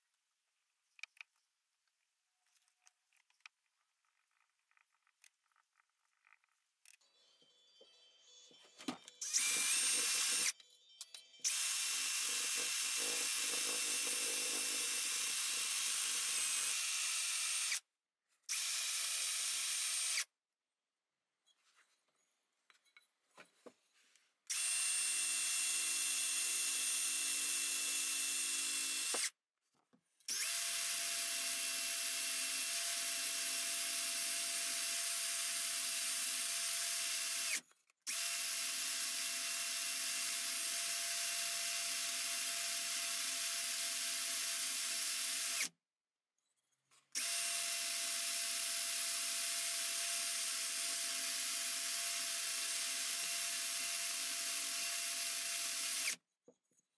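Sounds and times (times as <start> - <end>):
drill motor whining: 8.8 - 10.6, 11.4 - 17.8, 18.5 - 20.3, 24.5 - 29.3, 30.3 - 45.7, 47.2 - 56.2.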